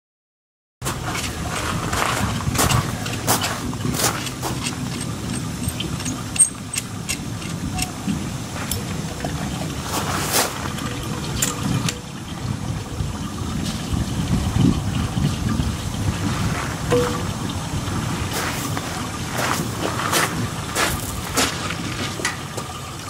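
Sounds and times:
ore clicking inside mill: 0.8s - 12.2s
ore mill rumbling: 0.8s - 23.0s.

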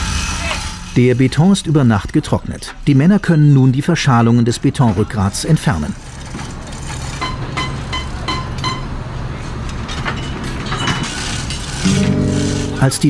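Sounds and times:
construction machinery hum: 5.0s - 13.0s.

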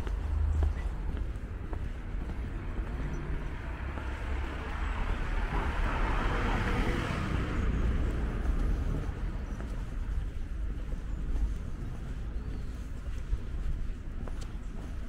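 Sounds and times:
low rumble of city traffic: 0.0s - 15.0s
car passing close by: 3.1s - 9.4s.

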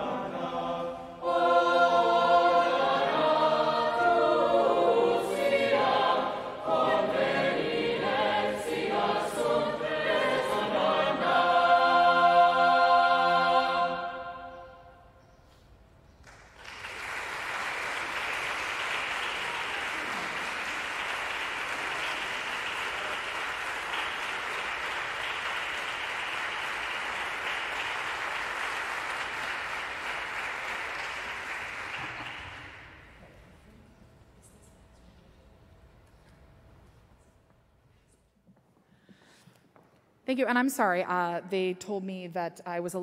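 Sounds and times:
choir final chord: 0.0s - 15.0s
audience applause: 16.3s - 33.1s.

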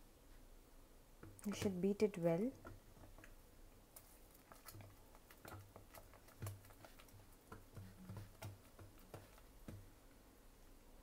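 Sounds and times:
metal ladle beating batter: 1.2s - 10.0s.

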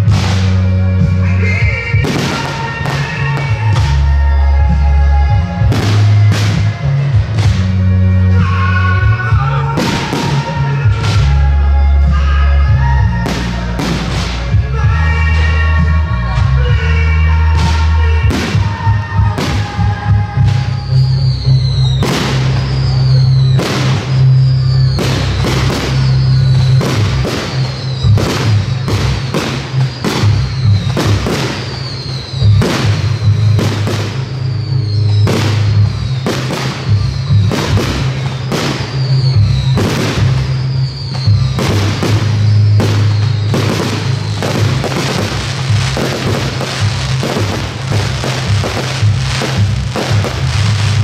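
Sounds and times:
fireworks shells bursting: 0.0s - 1.2s, 1.8s - 4.2s, 5.5s - 7.8s, 17.6s - 51.0s
loud music with heavy bass: 0.0s - 51.0s.

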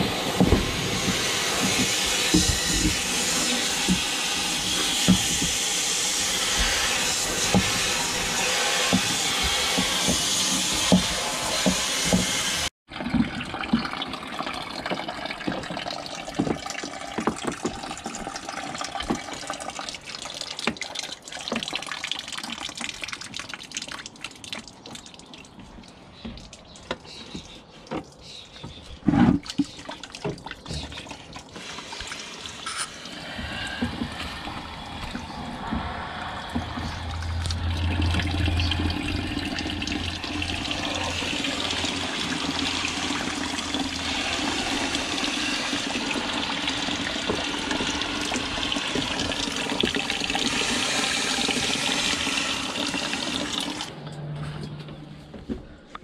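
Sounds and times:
water splashing into bucket: 12.9s - 26.8s, 29.3s - 53.9s
water drips: 13.0s - 28.3s, 29.4s - 50.7s.

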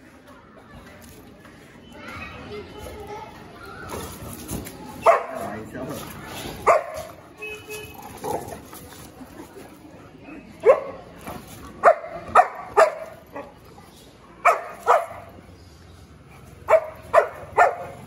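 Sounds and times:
dog barking: 5.0s - 5.4s, 6.6s - 7.1s, 11.8s - 13.6s, 14.4s - 15.3s, 16.6s - 18.0s.

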